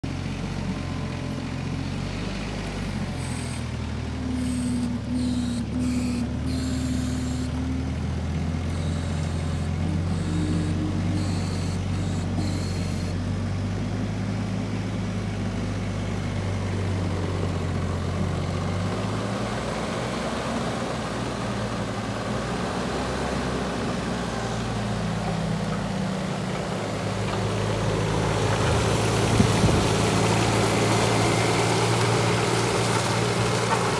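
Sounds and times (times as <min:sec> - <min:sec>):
excavator diesel engine running: 0:00.0 - 0:33.9
hydraulics whining: 0:02.7 - 0:13.3.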